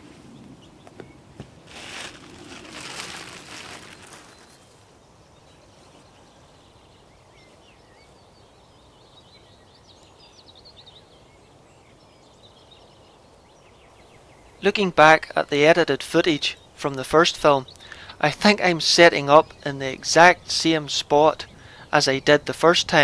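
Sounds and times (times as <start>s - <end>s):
brief rustle: 1.7s - 4.8s.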